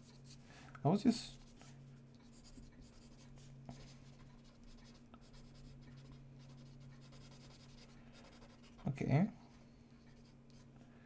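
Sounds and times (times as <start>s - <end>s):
steady low hum: 0.0s - 11.0s
pencil scratching on paper: 2.3s - 8.9s.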